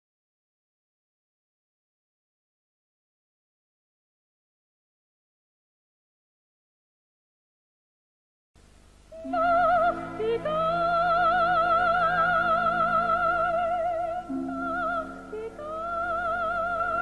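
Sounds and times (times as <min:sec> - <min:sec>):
musical accompaniment: 0:09.2 - 0:17.0.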